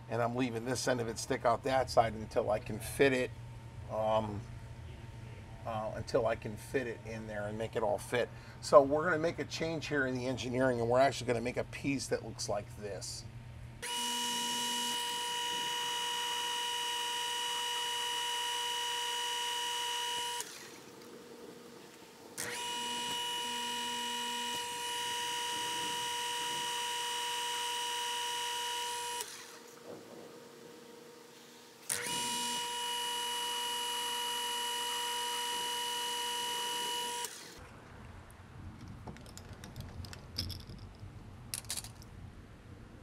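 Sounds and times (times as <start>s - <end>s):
metal lathe whining: 13.8s - 20.8s, 22.4s - 29.6s, 31.9s - 37.6s.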